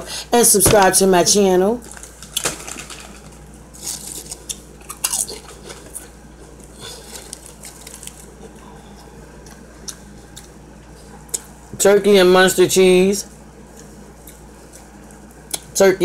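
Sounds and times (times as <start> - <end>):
low steady hum: 0.0 - 16.0
light eating clicks and rustles: 1.8 - 11.6, 13.6 - 15.7.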